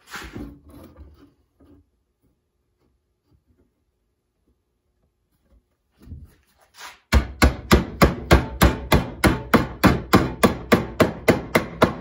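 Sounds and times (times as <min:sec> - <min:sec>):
hammer striking sheet metal: 0:07.1 - 0:12.0.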